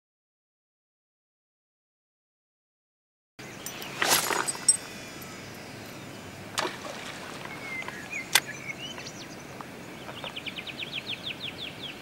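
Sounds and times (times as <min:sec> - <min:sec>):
birds calling: 0:03.4 - 0:12.0
steady outdoor hiss: 0:03.4 - 0:12.0.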